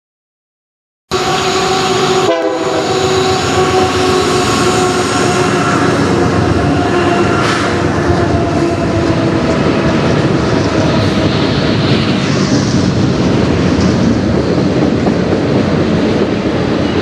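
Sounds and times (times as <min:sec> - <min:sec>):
train horn chord: 0:01.1 - 0:09.6
train running on rails: 0:01.1 - 0:17.0.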